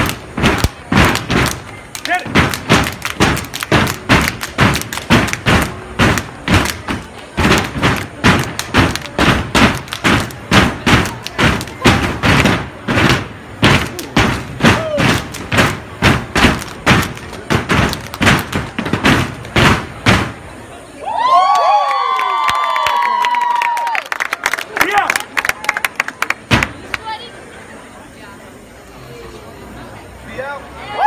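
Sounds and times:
stomps and claps in unison: 0.0 - 20.4.

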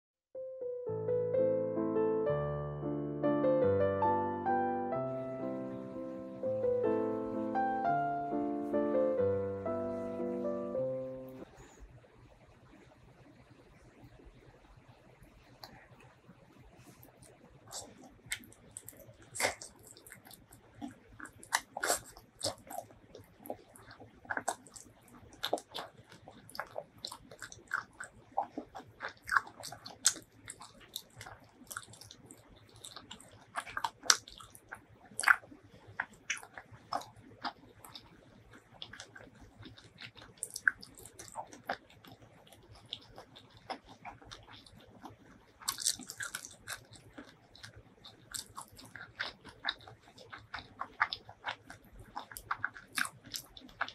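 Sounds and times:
chewing and biting chicken wings: 17.0 - 53.9.

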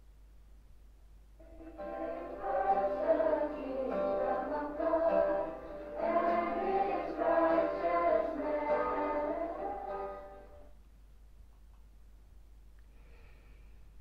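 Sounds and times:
choir singing: 1.4 - 10.6.

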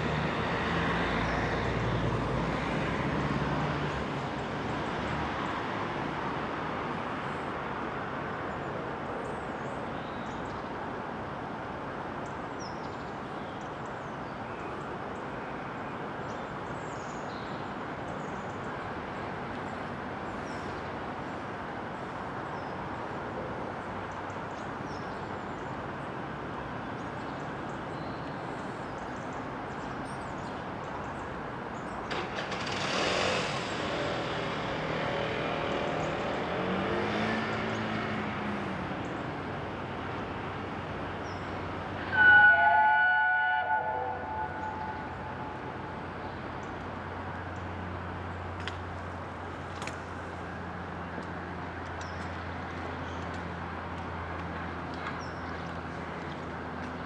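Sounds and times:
distant town and railway noise: 0.0 - 57.0
steam locomotive chime whistle: 42.0 - 45.1.

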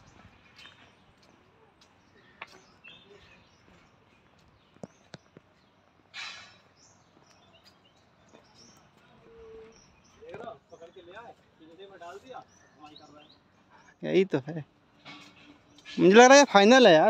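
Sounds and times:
faint bird chirps: 0.0 - 14.2
brief hiss: 6.1 - 6.6.

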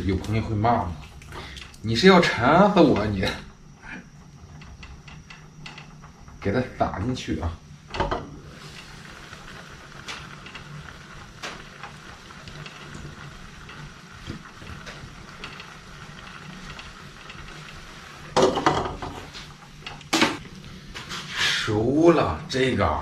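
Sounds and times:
gas burner hissing: 0.0 - 23.0
noodles bubbling: 7.6 - 21.5.

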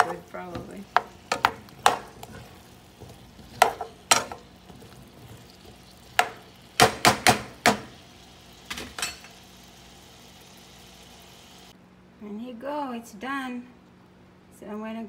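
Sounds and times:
spatula knocking against pan: 0.0 - 4.4, 6.1 - 7.9.

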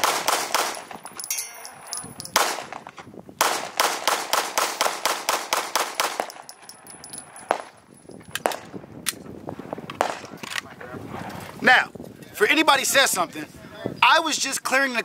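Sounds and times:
pistol shots rapid fire: 0.0 - 1.0, 2.3 - 6.5, 10.0 - 10.3.

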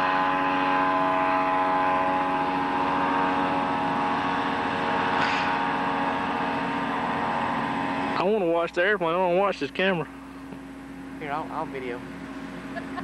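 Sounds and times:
light aircraft engine droning: 0.0 - 13.0.

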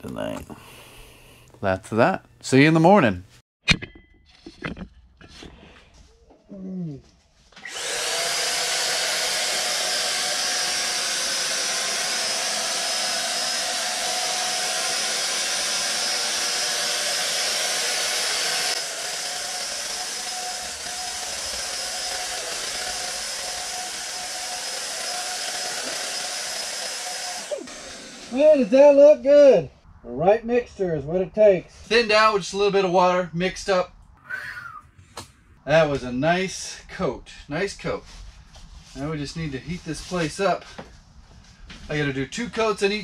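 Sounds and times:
electric paint sprayer whining: 7.6 - 28.7.

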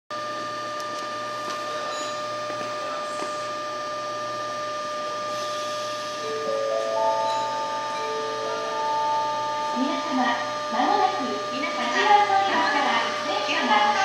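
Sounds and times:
electric train humming: 0.1 - 14.0
xylophone-like chime: 6.3 - 9.8.

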